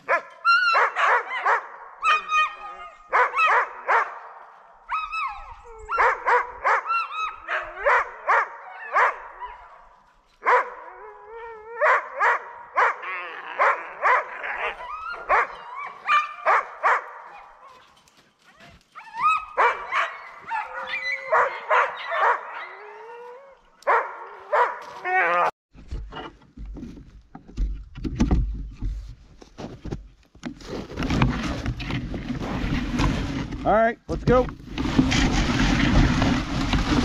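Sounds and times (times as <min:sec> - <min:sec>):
dogs barking and whining: 0:00.0 - 0:25.5.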